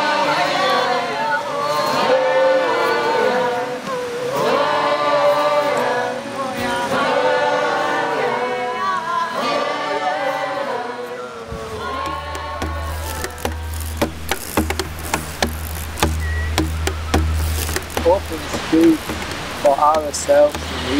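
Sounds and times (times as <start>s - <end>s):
group singing wordless notes: 0.0s - 20.9s
low drone: 12.0s - 20.9s.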